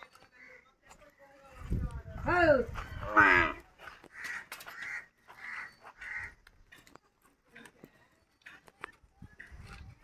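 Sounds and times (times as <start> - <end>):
crow cawing: 4.0 - 6.4.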